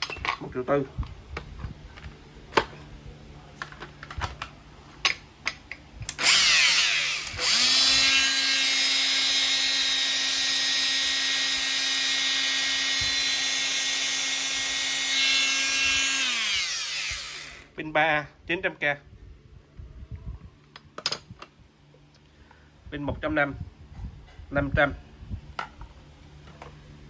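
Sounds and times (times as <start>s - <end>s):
angle grinder whining: 6.1s - 17.7s.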